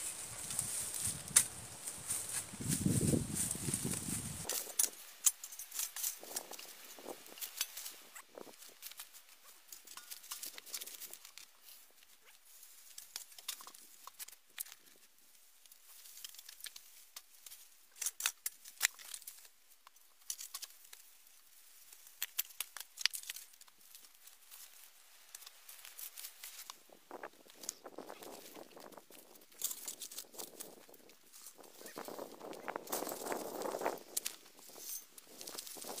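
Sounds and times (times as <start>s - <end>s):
footsteps crunching dry leaves: 0.0s - 5.2s, 25.6s - 36.0s.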